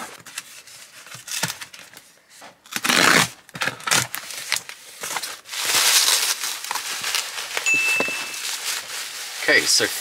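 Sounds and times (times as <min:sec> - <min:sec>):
packaging rustling and crinkling: 0:02.8 - 0:10.0.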